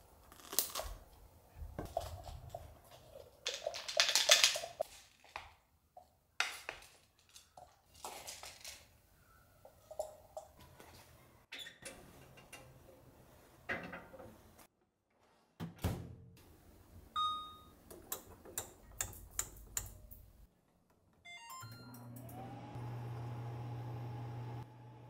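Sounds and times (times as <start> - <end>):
oven motor humming: 21.8 - 25.0.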